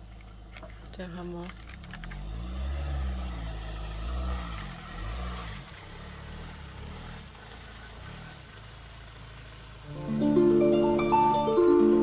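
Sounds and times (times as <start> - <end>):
vehicle passing by: 2.0 - 9.2.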